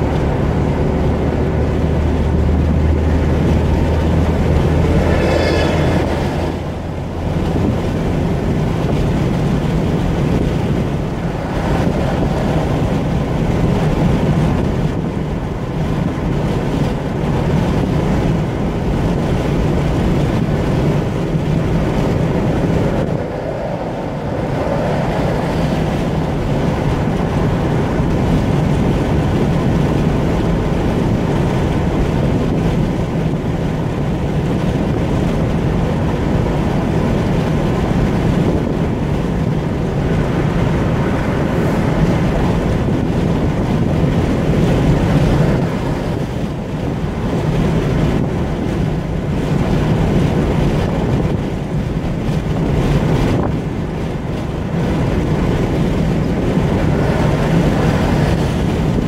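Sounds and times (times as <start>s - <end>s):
low drone: 0.0s - 15.6s, 19.9s - 31.0s
tyre roar on asphalt: 0.0s - 59.0s
wind noise: 0.0s - 59.0s.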